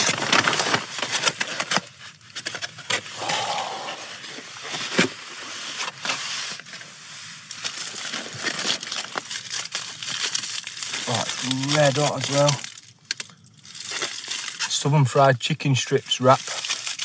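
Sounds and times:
polystyrene box handled: 7.4s - 12.7s
paper bag rustling: 7.4s - 12.8s.

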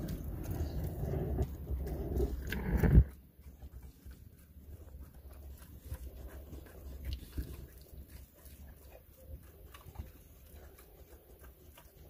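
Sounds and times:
dog chewing and mouth-smacking: 0.0s - 12.0s.

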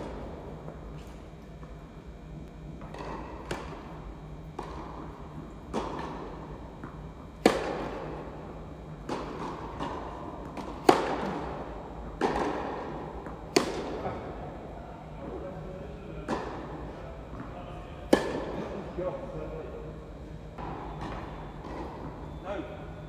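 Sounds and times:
tennis balls bouncing on court: 2.7s - 8.3s, 8.9s - 14.2s, 18.1s - 18.6s, 20.6s - 22.3s
tennis balls struck by rackets: 2.7s - 14.4s, 16.2s - 18.8s, 20.6s - 22.3s.

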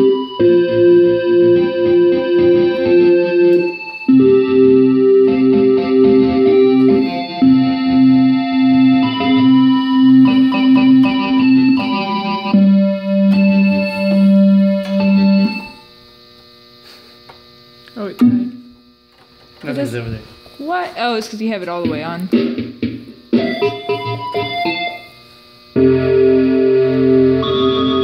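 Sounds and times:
electronic keyboard playing: 0.0s - 15.9s, 21.8s - 25.2s, 25.8s - 28.0s.

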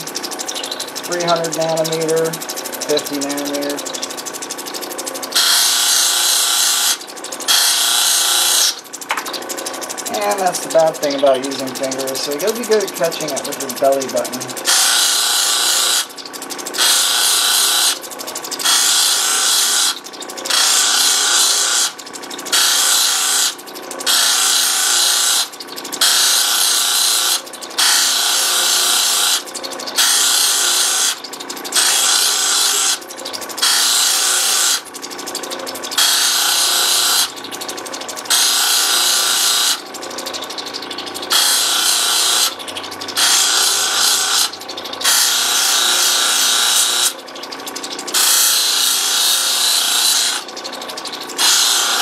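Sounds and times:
stone rubbing on polishing wheel: 0.0s - 4.1s, 5.3s - 8.8s, 10.1s - 16.1s, 16.8s - 18.0s, 18.6s - 29.4s, 30.0s - 33.0s, 33.6s - 34.8s, 36.0s - 37.3s, 38.3s - 39.8s, 41.3s - 42.6s, 43.2s - 47.2s, 48.1s - 50.5s, 51.4s - 52.0s
machine humming: 0.0s - 52.0s.

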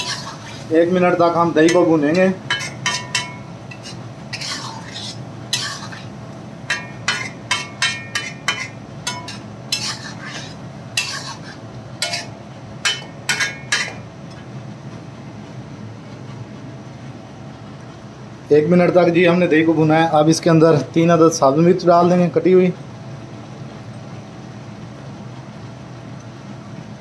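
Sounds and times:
metal spatula scraping iron pan: 0.0s - 0.8s, 1.6s - 6.1s, 6.7s - 14.0s.

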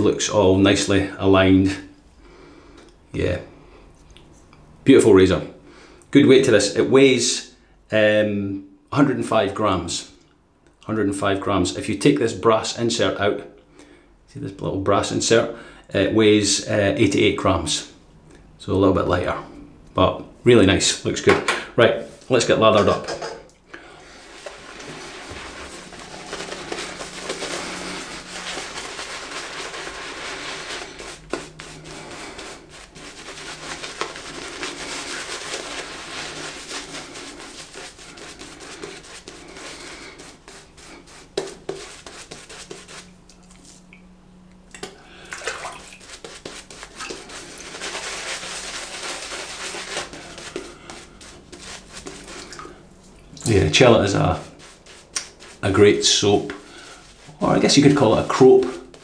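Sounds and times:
shaving brush swishing lather: 24.1s - 43.9s, 45.4s - 52.9s, 53.5s - 59.0s.

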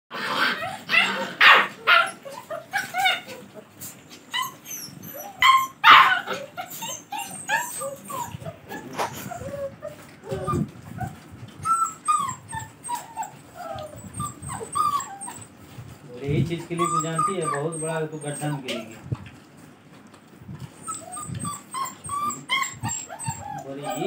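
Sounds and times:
puppies yipping and whimpering: 0.2s - 19.2s, 20.5s - 24.0s
dog barks: 0.9s - 2.2s, 5.8s - 6.4s.

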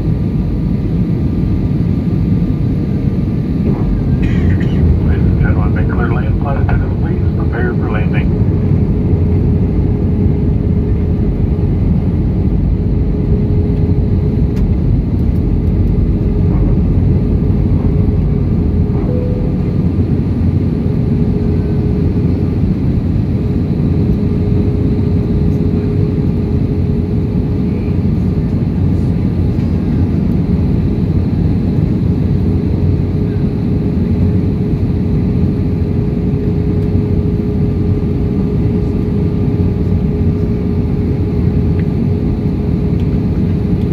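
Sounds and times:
jet engine and airflow roar: 0.0s - 43.9s
steady mid-pitched hum: 0.0s - 43.9s.

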